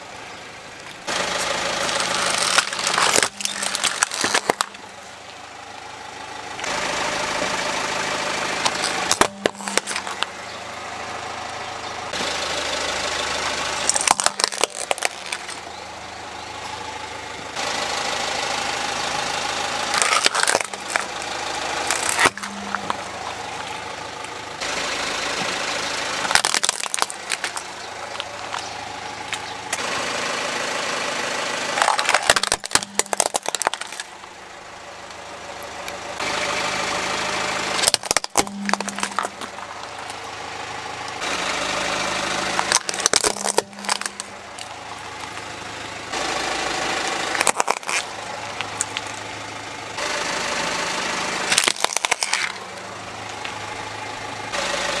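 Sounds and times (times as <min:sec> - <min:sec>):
car engine running: 0:00.0 - 0:55.0
plastic toys cracking under tyre: 0:00.9 - 0:04.9, 0:08.6 - 0:10.3, 0:13.8 - 0:15.7, 0:19.8 - 0:24.4, 0:26.2 - 0:29.9, 0:31.7 - 0:34.3, 0:37.8 - 0:40.2, 0:42.3 - 0:45.5, 0:47.2 - 0:49.2, 0:51.5 - 0:53.6.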